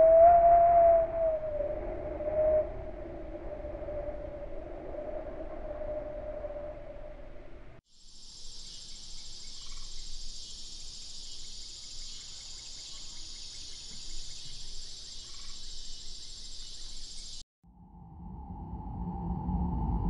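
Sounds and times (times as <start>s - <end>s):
crickets chirping: 7.9s - 17.4s
low rumble: 17.7s - 20.0s.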